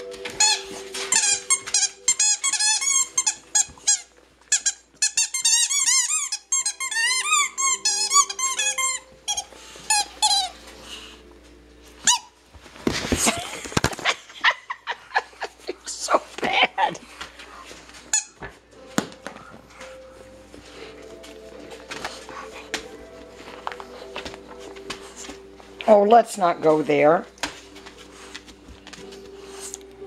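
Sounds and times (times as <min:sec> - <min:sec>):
squeaky rubber toy squeaking: 0:00.4 - 0:10.5
noisy scuffling: 0:07.5 - 0:14.3, 0:15.4 - 0:30.0.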